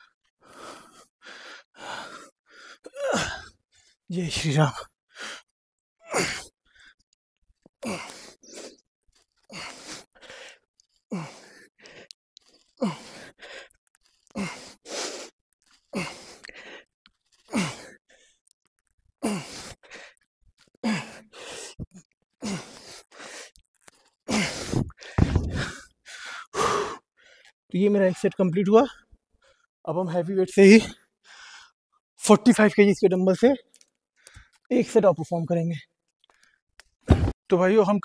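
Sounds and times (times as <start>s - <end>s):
man grunting and breathing hard: 2.8s - 3.5s, 19.2s - 19.8s
dumbbell thud: 37.1s - 37.3s.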